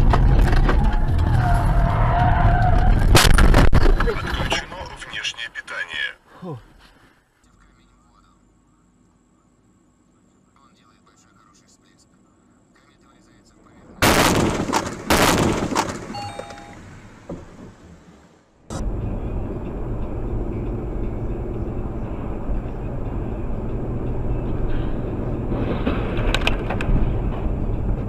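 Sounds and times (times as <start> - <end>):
loud car crash: 0.0 - 4.8, 14.0 - 16.2, 24.6 - 28.0
car engine and road noise: 0.0 - 28.0.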